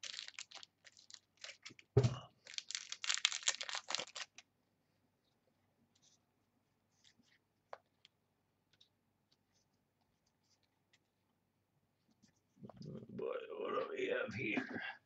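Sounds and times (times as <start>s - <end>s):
foil wrapper crinkling and tearing: 0.0s - 1.8s, 2.4s - 4.4s.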